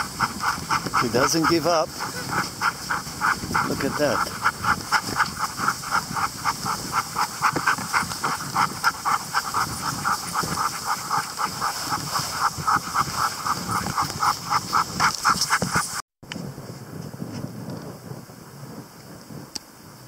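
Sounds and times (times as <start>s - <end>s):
dog panting hard: 0.0s - 16.0s.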